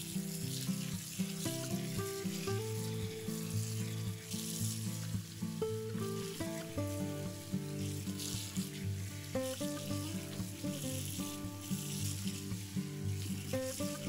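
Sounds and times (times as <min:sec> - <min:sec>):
folk-style background music: 0:00.0 - 0:14.0
food sizzling in oil: 0:00.0 - 0:14.0.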